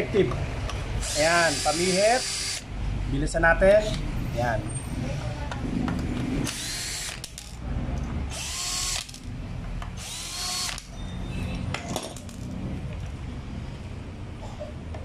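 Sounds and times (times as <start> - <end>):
cordless drill motor whine: 1.0 - 2.7, 6.5 - 7.2, 8.3 - 9.2, 10.0 - 10.9.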